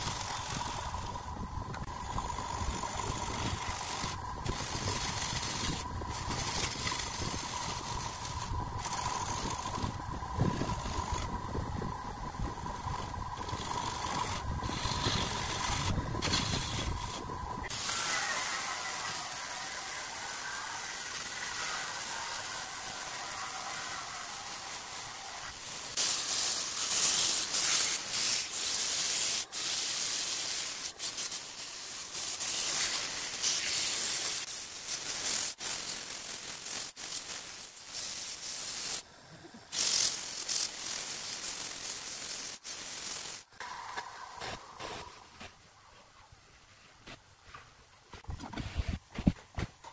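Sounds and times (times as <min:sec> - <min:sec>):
machine rumble and whine: 0:00.0 - 0:20.8
long even hiss: 0:00.0 - 0:49.3
harsh hiss with clicks: 0:00.0 - 0:49.9.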